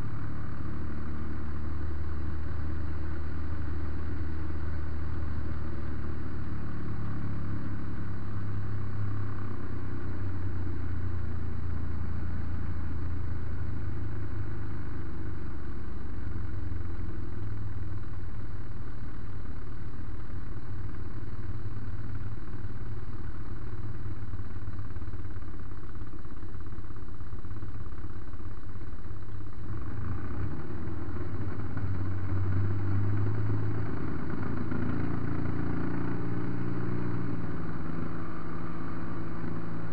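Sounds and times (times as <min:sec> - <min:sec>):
model plane engine running: 0:00.0 - 0:39.9.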